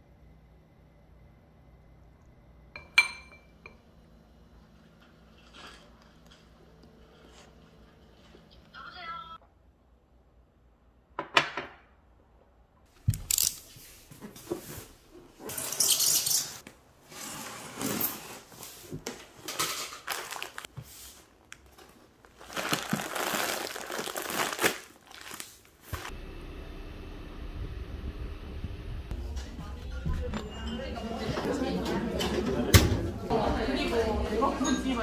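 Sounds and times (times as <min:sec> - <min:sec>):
plastic packets rustling: 0:19.4 - 0:26.1
packing tape tearing: 0:22.3 - 0:26.1.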